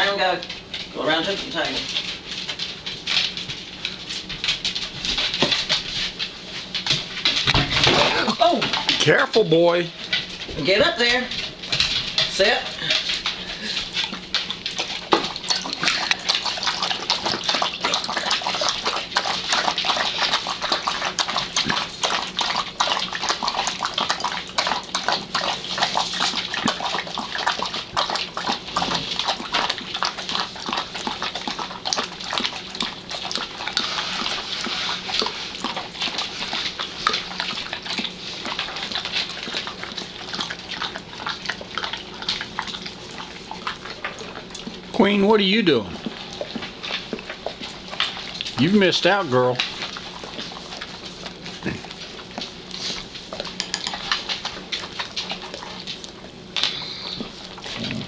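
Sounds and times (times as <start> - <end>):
dogs lapping from a bowl: 0.0 - 58.0.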